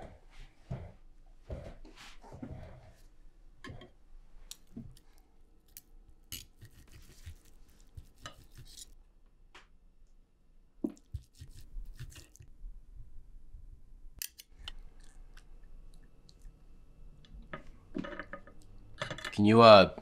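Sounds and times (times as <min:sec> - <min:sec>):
knife and fork scraping plates: 0:08.0 - 0:08.9.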